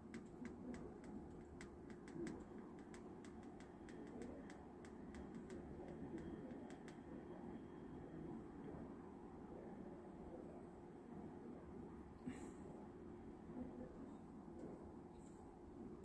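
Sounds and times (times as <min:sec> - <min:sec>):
faint light clicks: 0:00.0 - 0:07.0
low steady hum: 0:00.0 - 0:16.0.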